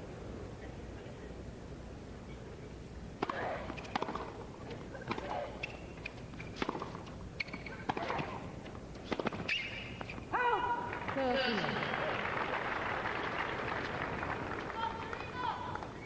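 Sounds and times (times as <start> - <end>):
ball bouncing on hard court: 3.2 - 4.3
rackets striking tennis ball: 3.2 - 10.3.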